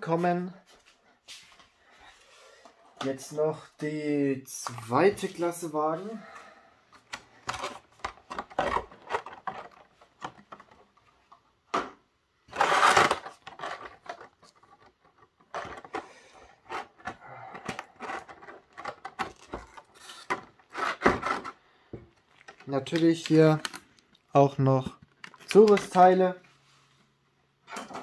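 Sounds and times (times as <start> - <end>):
rigid plastic clicking and crackling: 6.9 - 11.8, 12.6 - 21.5, 22.1 - 26.2.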